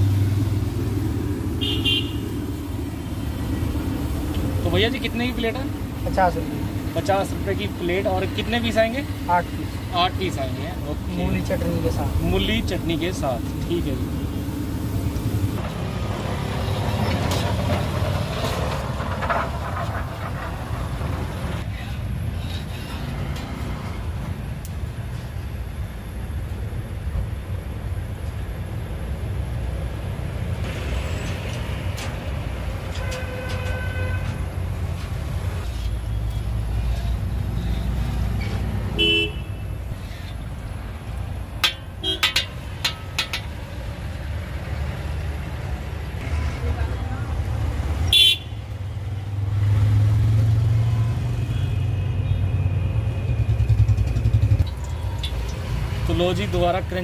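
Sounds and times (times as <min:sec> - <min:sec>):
road traffic rumble: 0:00.0 - 0:57.0
car horns tooting: 0:01.6 - 0:02.2, 0:32.9 - 0:34.4, 0:39.0 - 0:39.8, 0:42.0 - 0:42.5, 0:48.1 - 0:48.6.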